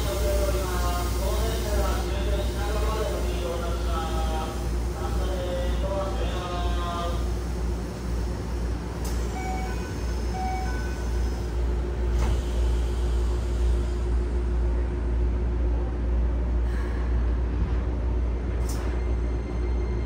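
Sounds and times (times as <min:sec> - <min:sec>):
train wheels rumbling on rail: 0:00.0 - 0:20.0
short beeps: 0:09.3 - 0:11.0.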